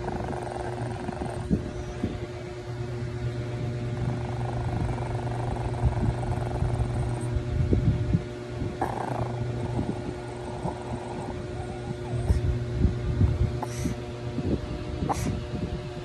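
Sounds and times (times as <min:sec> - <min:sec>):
small dog growling: 0:00.0 - 0:02.2, 0:03.7 - 0:07.5, 0:08.6 - 0:12.6, 0:13.6 - 0:14.0, 0:15.0 - 0:15.4
low hum: 0:00.0 - 0:16.0.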